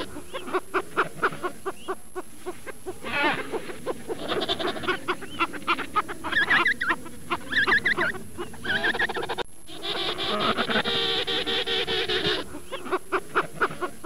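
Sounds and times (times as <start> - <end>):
penguins squawking: 3.0 - 14.0.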